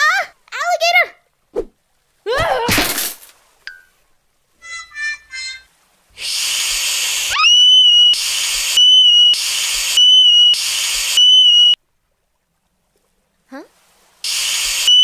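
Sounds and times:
cartoon hiss: 6.2s - 11.8s, 14.3s - 15.0s
loud steady whistle: 6.2s - 11.8s, 14.3s - 15.0s.

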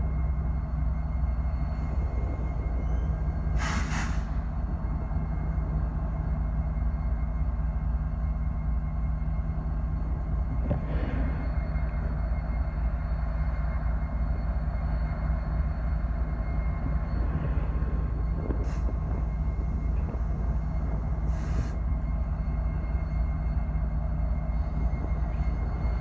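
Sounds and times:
diesel freight train rumbling: 0.0s - 26.0s
short hissing noises: 3.6s - 4.4s, 21.3s - 21.8s.

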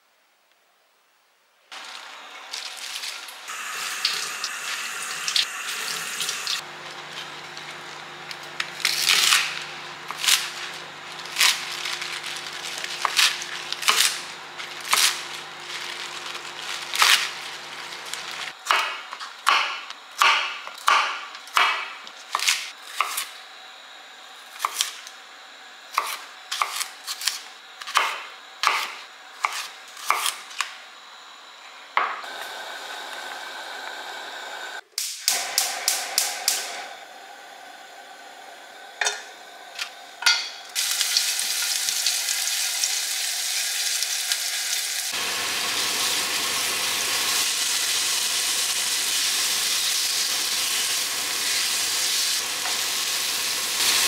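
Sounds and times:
knife cutting on cutting board: 26.0s - 30.4s
steady low hum: 30.8s - 40.8s.

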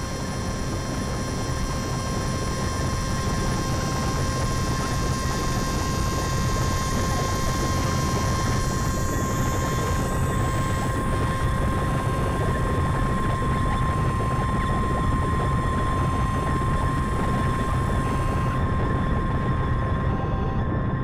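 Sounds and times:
steady high synthesizer tone: 3.6s - 20.8s
low noisy synthesizer rumble: 5.4s - 21.0s.

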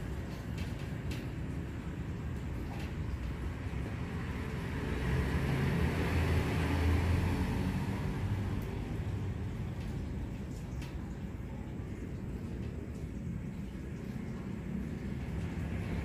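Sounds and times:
vehicle passing by: 3.5s - 10.2s.

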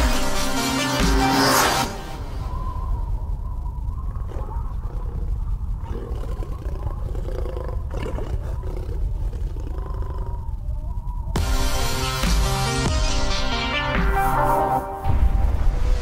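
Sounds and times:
big cat growling: 4.1s - 11.1s.

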